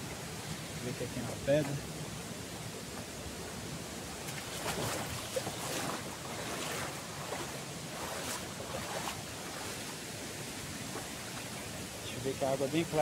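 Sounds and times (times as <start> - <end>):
water rushing over rocks: 0.0 - 13.0.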